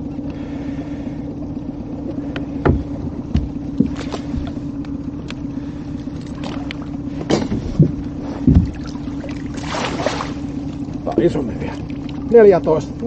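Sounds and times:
steady hum: 0.0 - 13.0
water splashing: 8.0 - 12.8.

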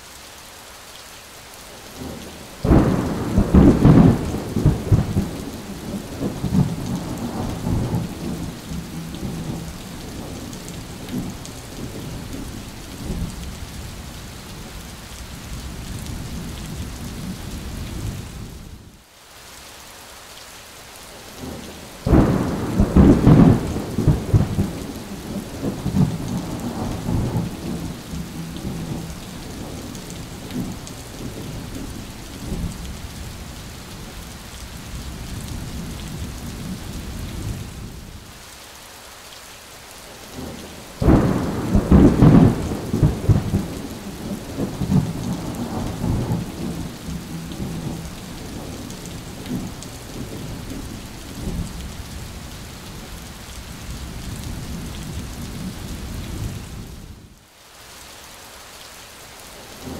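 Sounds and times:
steady rain: 0.0 - 59.9
thunder rumbling: 2.0 - 13.4, 21.5 - 33.1, 40.4 - 52.0.

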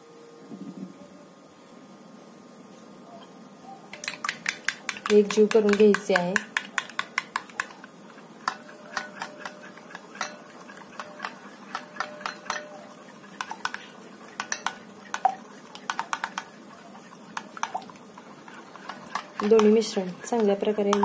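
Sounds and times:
metal spoon clinking in glass bowl: 8.5 - 13.8, 14.4 - 14.9.

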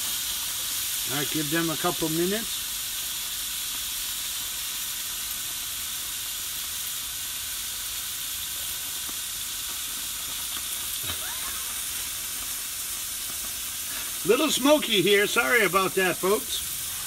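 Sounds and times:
chicken sizzling on grill: 0.0 - 17.0
fat spitting: 11.0 - 12.0.

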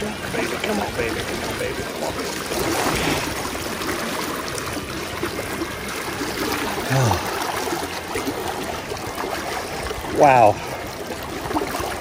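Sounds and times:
river current rushing: 0.0 - 12.0
short low voice sound: 6.8 - 7.3.

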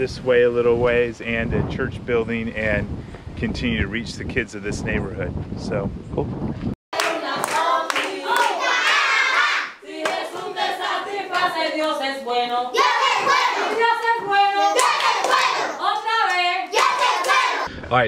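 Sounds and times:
hand claps: 7.0 - 8.5
children singing: 7.0 - 17.7.

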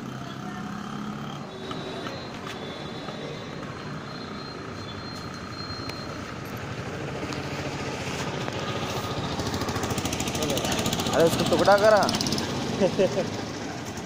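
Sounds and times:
street traffic: 0.0 - 14.0
motorbike engine running: 6.0 - 14.0.

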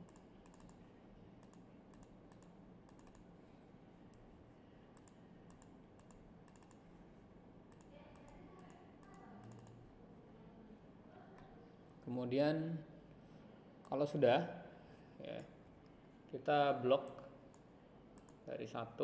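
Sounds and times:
computer mouse clicks: 0.0 - 3.3, 4.9 - 6.9, 7.7 - 9.9, 17.0 - 18.5.

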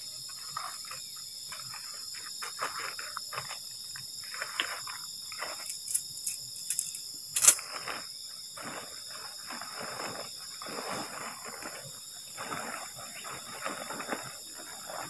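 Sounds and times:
night insects chirring: 0.0 - 15.0
plastic sheet rustling and crinkling: 0.2 - 15.0
tent poles clicking and knocking: 0.5 - 7.8.

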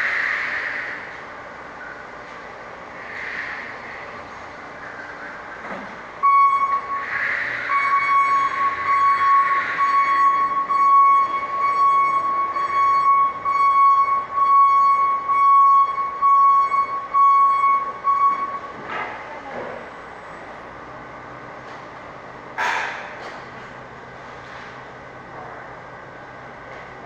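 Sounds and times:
high-pitched electronic alarm tone: 6.2 - 18.7.

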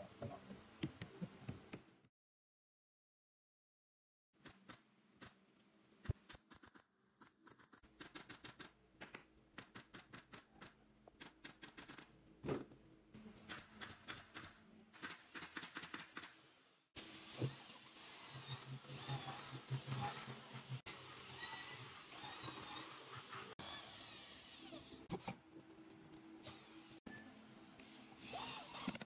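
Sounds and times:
cordless drill running: 28.2 - 29.0.

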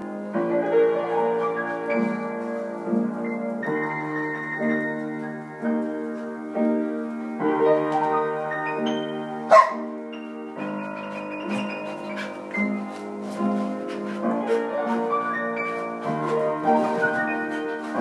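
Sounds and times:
upright piano playing: 0.0 - 18.0
dog barking: 9.5 - 9.9.

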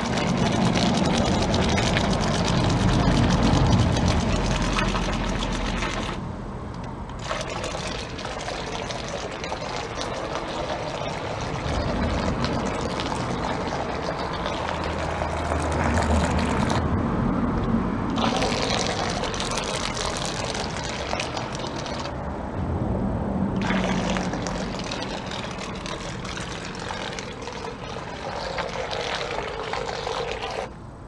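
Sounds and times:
model boat churning through water: 0.0 - 6.3, 7.1 - 16.9, 18.1 - 22.3, 23.6 - 30.8.

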